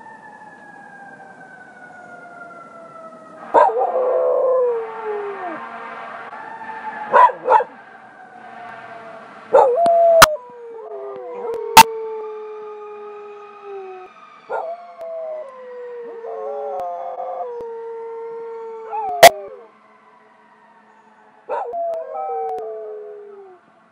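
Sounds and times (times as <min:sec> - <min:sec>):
dogs howling: 0:03.4 - 0:05.6, 0:07.0 - 0:07.8, 0:09.0 - 0:19.7, 0:21.5 - 0:23.6.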